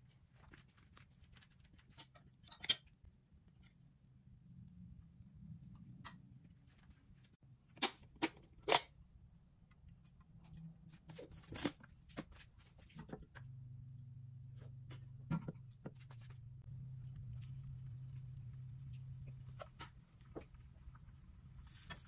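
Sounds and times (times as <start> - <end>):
steady low hum: 9.0 - 22.0.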